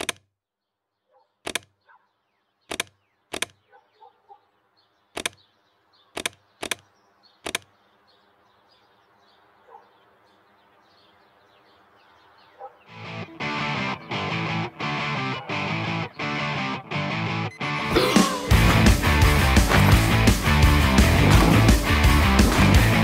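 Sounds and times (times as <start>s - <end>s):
faint birds chirping: 0.0s - 23.0s
sharp knocks: 18.5s - 23.0s.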